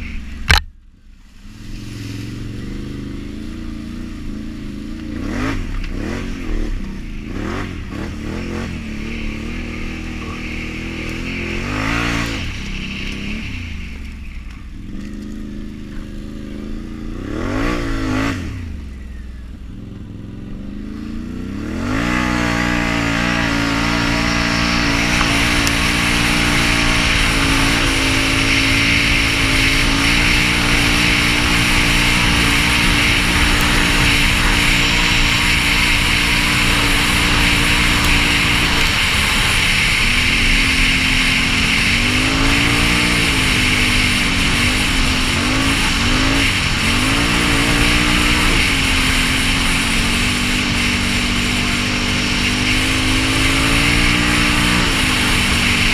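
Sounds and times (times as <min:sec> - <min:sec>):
atv engine running: 0:00.0 - 0:55.9
steady hiss: 0:22.2 - 0:55.9.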